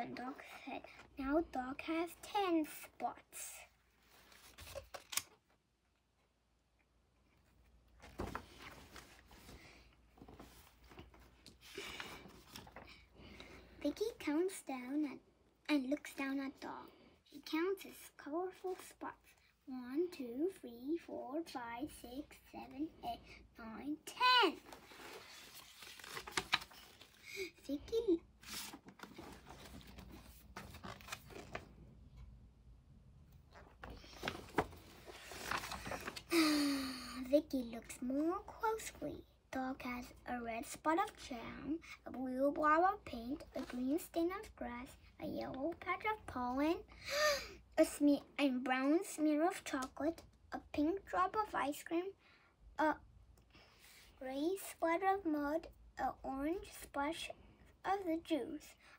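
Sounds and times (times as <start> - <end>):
book pages rustling: 4.0 - 5.3, 7.4 - 13.6, 24.2 - 32.3, 33.4 - 36.4, 43.4 - 44.1.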